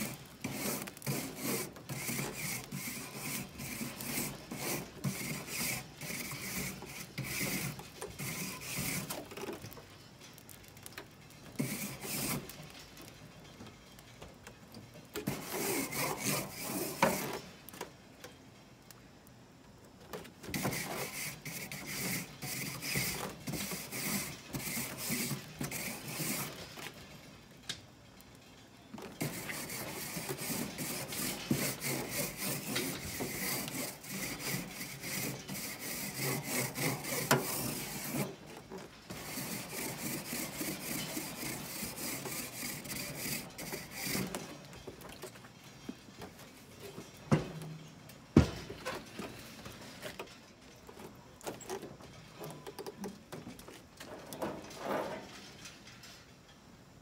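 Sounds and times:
wire brush scrubbing grill grates: 0.0 - 9.7, 11.5 - 12.7, 15.2 - 17.4, 20.4 - 27.0, 29.0 - 45.4.

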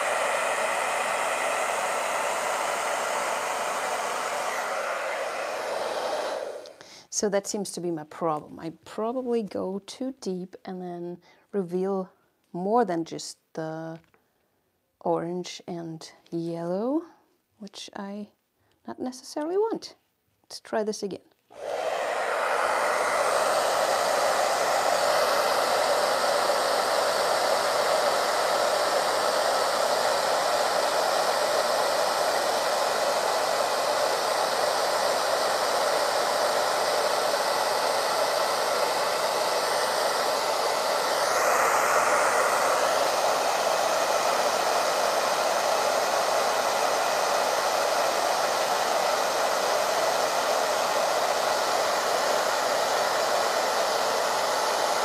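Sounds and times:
hair dryer blowing: 0.0 - 7.6, 21.5 - 55.0.

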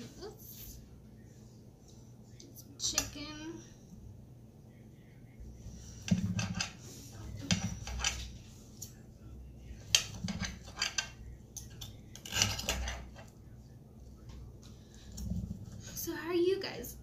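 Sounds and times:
knife and fork scraping a plate: 12.2 - 13.2.

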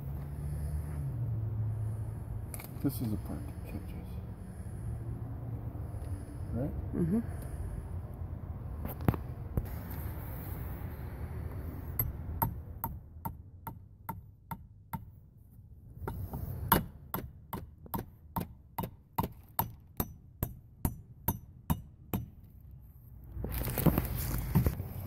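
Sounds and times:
rustling handling noise: 23.4 - 25.0.

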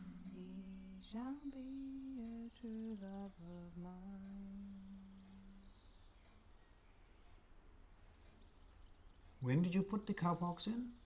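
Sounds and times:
person humming a slow tune: 0.0 - 5.8.

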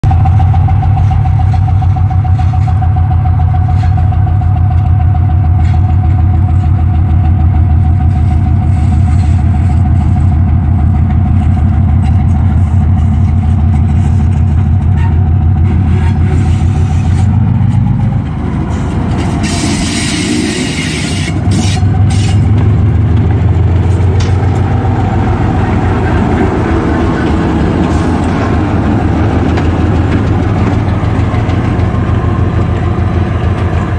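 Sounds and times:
diesel locomotive engine rumbling: 0.0 - 33.9
hiss: 19.4 - 22.4.

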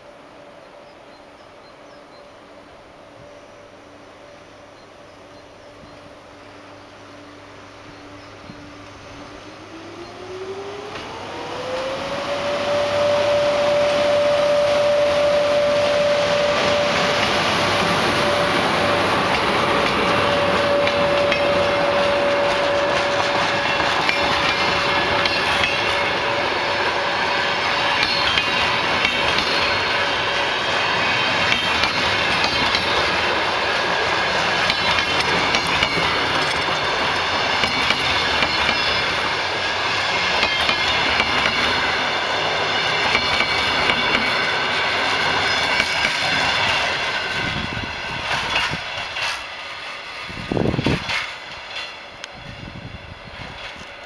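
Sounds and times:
electric locomotive whine: 0.0 - 54.0
train coaches rushing by: 0.0 - 54.0
wheels clicking over rail joints: 19.0 - 26.4, 30.9 - 52.4.

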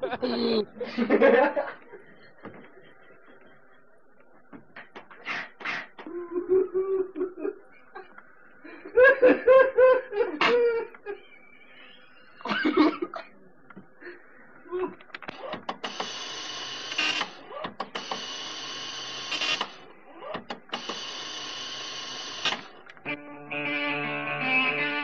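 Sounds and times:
human laughter: 0.0 - 15.6.

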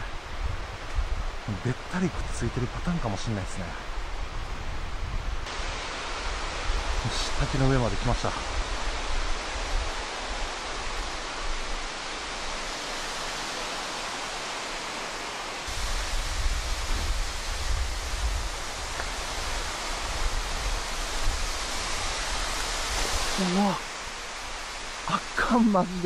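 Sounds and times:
waterfall rushing: 5.5 - 26.0.

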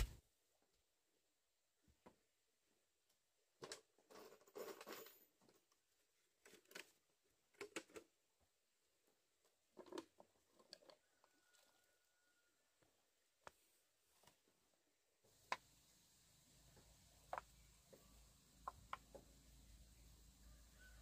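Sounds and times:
rustling and scraping handling: 3.6 - 8.1, 12.8 - 15.4.

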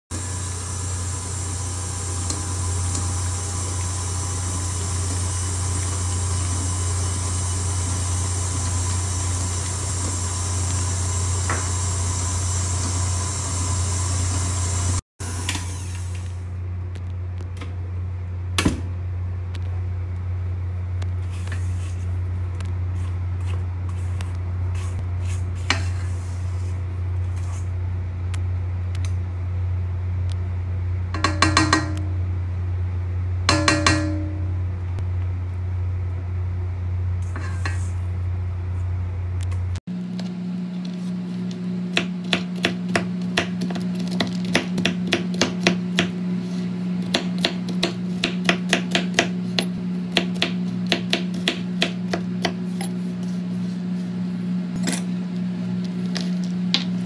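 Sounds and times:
stand mixer motor humming: 0.2 - 16.0
knocks on metal bowl: 31.2 - 32.0, 33.5 - 34.4.

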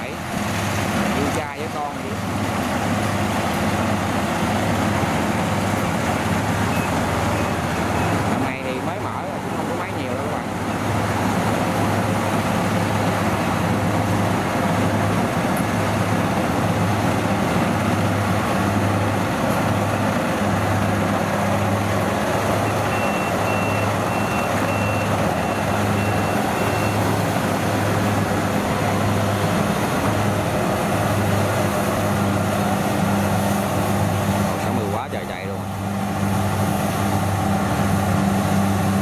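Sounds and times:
combine harvesters running: 0.0 - 39.0
high warning beeps: 22.6 - 27.0.

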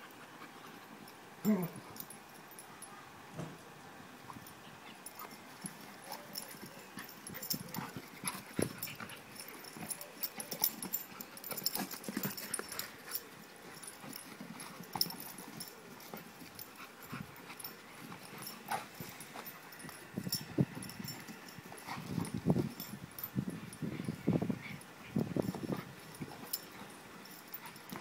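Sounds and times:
dogs play-fighting noises: 0.0 - 3.1, 4.2 - 28.0
paws scuffling on grass: 4.6 - 28.0.

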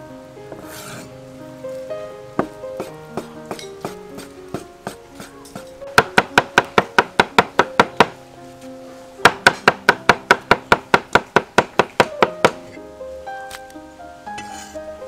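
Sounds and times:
background music: 0.0 - 15.0
cleaver chopping on wooden board: 2.4 - 8.2, 9.3 - 12.6.

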